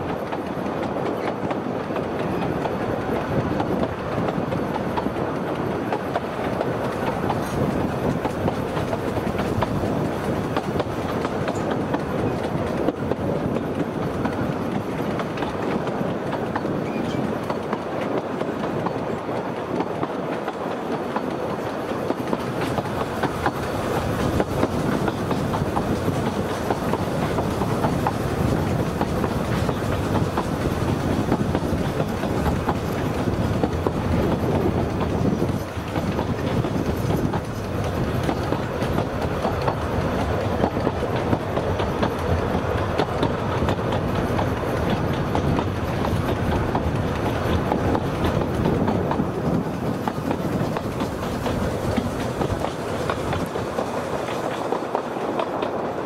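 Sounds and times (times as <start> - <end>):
train rumbling: 0.0 - 56.0
wheels clicking on track: 0.0 - 56.0.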